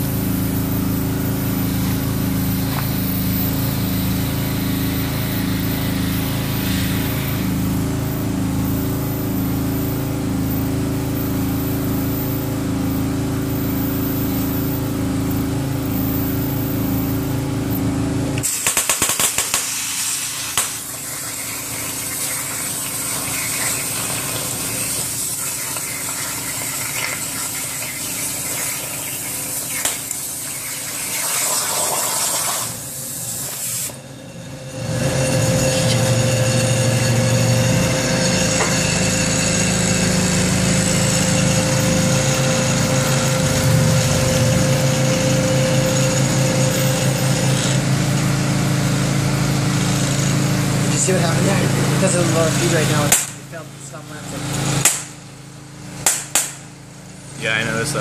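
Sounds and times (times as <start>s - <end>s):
low drone with high tone: 0.0s - 31.9s, 32.7s - 54.8s
cutting torch hissing and crackling: 1.6s - 7.8s, 18.4s - 34.0s.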